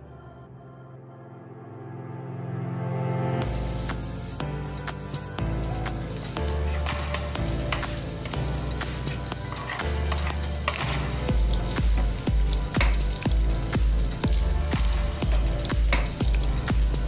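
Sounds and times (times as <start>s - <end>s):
background music with bass beat: 3.4s - 17.0s
onions sizzling in hot oil: 5.6s - 17.0s.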